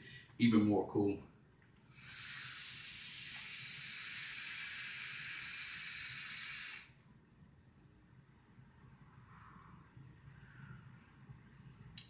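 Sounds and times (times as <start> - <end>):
vape hissing: 1.9 - 6.9.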